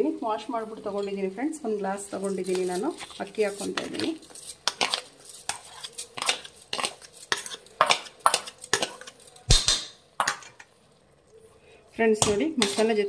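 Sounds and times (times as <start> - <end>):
metal spatula scraping steel bowl: 2.1 - 9.5, 12.2 - 13.0.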